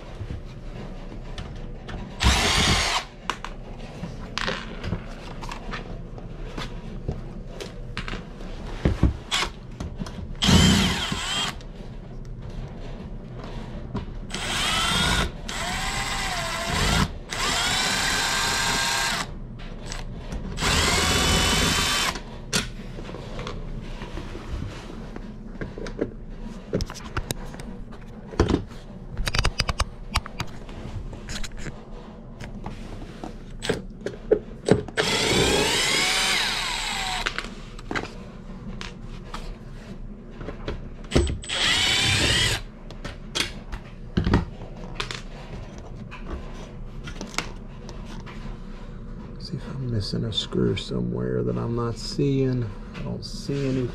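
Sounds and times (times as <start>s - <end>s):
cordless drill motor whining: 2.2s - 3.1s, 10.4s - 11.6s, 14.3s - 19.3s, 20.6s - 22.2s, 35.0s - 37.4s, 41.1s - 42.7s
sharp clicks and knocks: 28.3s - 30.6s.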